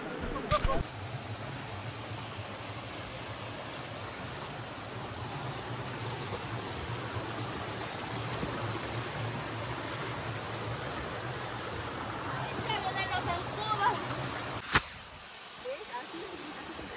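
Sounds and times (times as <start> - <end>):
waterfall rushing: 0.8 - 16.9.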